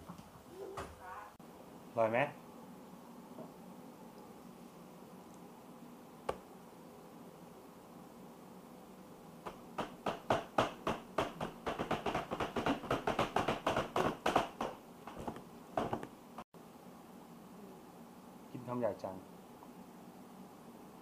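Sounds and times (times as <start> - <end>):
rapid light taps: 6.2 - 6.5, 9.4 - 16.2.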